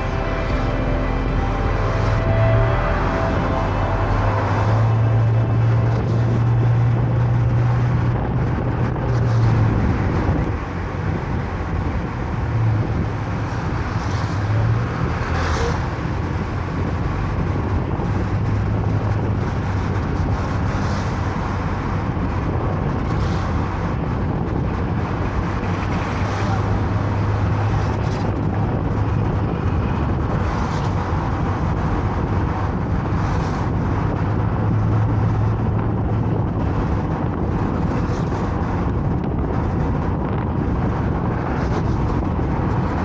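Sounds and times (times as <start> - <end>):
car engine and tyre noise: 0.0 - 43.0.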